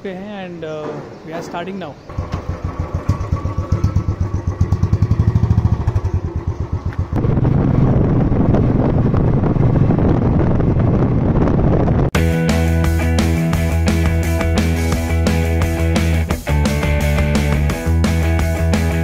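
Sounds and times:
wind and engine noise riding: 0:00.0 - 0:12.2
motorcycle engine thumping: 0:00.8 - 0:11.5.

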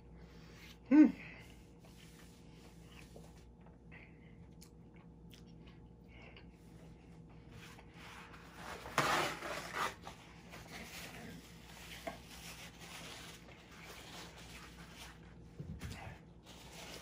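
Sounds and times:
paper towel rustling: 0:07.4 - 0:17.0.

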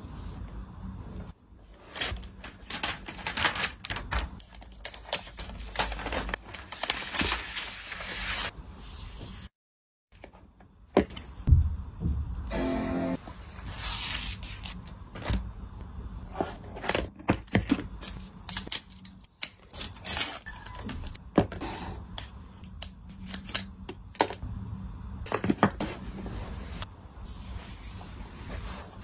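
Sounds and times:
paper wrap handling: 0:01.8 - 0:08.5, 0:13.6 - 0:14.9.

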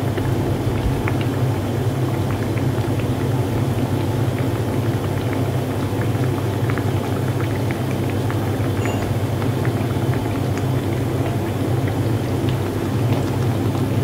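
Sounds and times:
dough sizzling in hot oil: 0:00.0 - 0:14.0.

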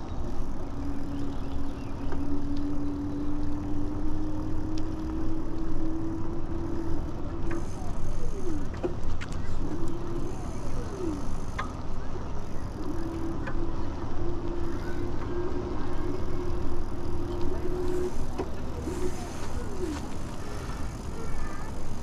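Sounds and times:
electric motor hum: 0:09.6 - 0:22.0.

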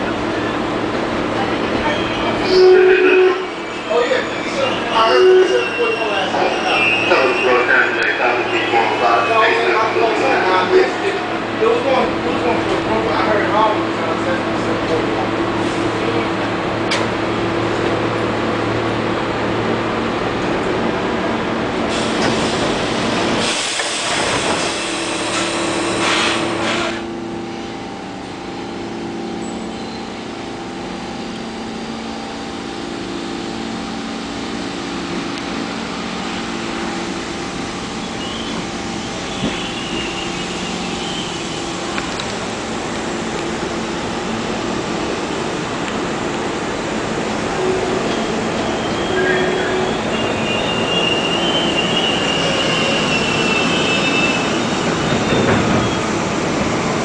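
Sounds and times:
subway train rumbling: 0:00.0 - 0:57.0
train electrical hum: 0:00.0 - 0:57.0
train wheel squeal: 0:01.7 - 0:09.7, 0:29.4 - 0:30.3, 0:37.9 - 0:41.8, 0:47.5 - 0:56.2.

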